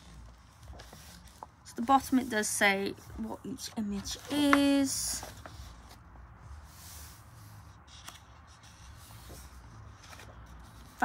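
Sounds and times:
paper pages rustling: 0.0 - 11.0.

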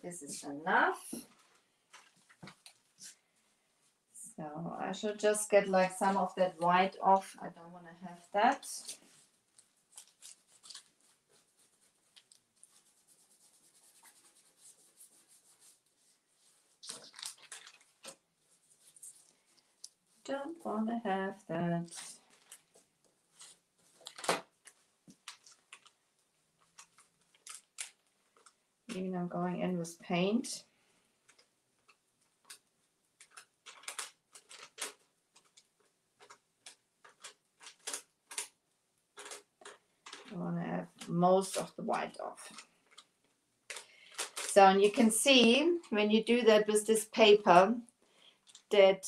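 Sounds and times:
paintbrush scratching on paper: 10.0 - 16.8, 18.4 - 19.3.

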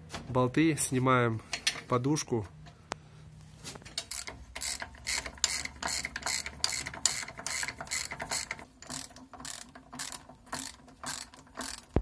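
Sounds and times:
ratchet wrench clicking: 3.9 - 12.0.

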